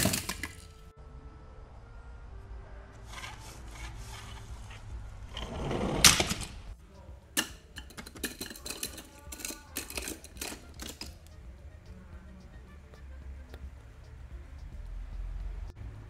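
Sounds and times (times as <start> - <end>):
toy cars clicking in a box: 0.0 - 0.8, 7.4 - 11.4
toy cars scraping over plastic: 3.0 - 6.7.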